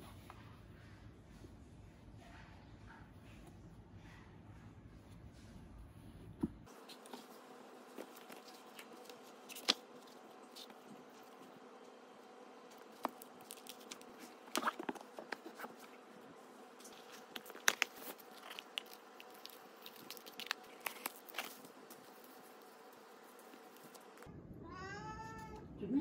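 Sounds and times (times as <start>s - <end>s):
faint steady hum: 0.0s - 26.0s
packaging crinkling: 12.6s - 24.3s.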